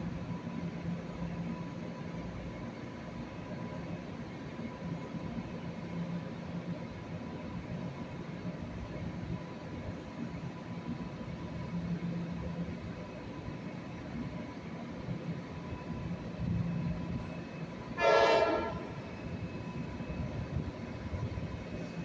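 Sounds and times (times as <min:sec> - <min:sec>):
train rumble: 0:00.0 - 0:22.0
train horn blast: 0:18.0 - 0:19.0.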